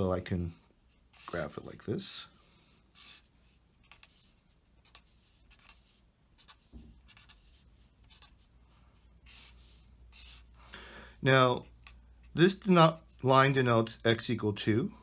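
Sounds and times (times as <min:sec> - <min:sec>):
pen scratching on paper: 0:02.4 - 0:08.5, 0:09.2 - 0:10.5.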